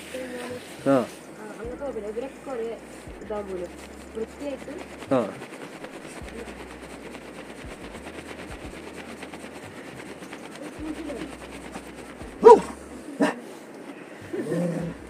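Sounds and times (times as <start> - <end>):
low background hiss: 0.0 - 15.0
dog barking: 12.4 - 13.5.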